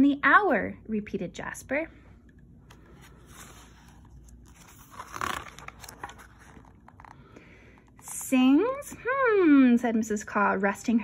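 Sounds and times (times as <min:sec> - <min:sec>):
book page turning: 0:02.7 - 0:08.2.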